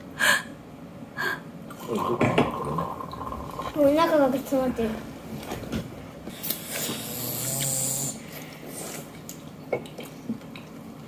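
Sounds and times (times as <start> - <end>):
air hissing through a straw: 6.3 - 9.0
child slurping through a straw: 6.3 - 9.2.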